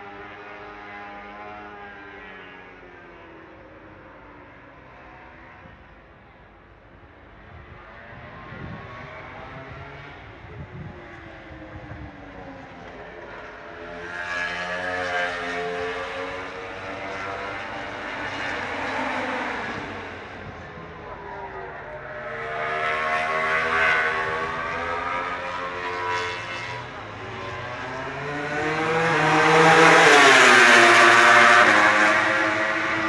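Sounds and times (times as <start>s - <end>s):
racing motorcycles passing at high revs: 7.6s - 33.0s.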